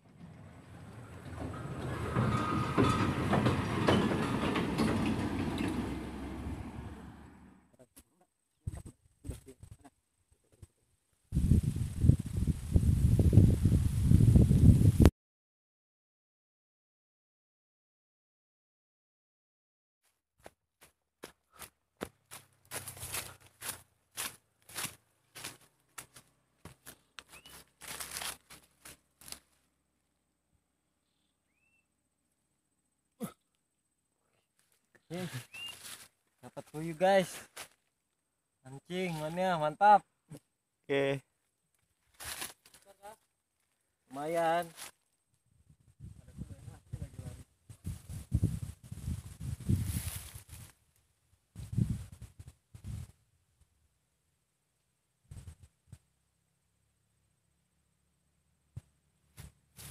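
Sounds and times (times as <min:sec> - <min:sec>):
vehicle crossing bridge: 0:00.0 - 0:07.7, 0:21.6 - 0:29.8
footsteps in dry leaves: 0:21.5 - 0:29.7, 0:34.6 - 0:37.9, 0:42.0 - 0:45.0, 0:49.5 - 0:50.9.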